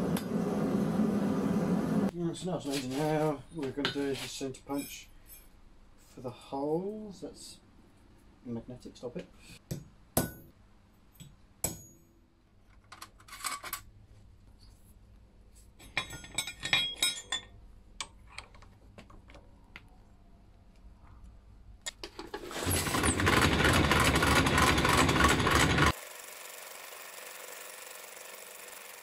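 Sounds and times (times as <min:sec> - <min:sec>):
hammer striking a punch: 0:09.7 - 0:10.5, 0:11.6 - 0:12.0
drill press motor running: 0:22.5 - 0:29.0.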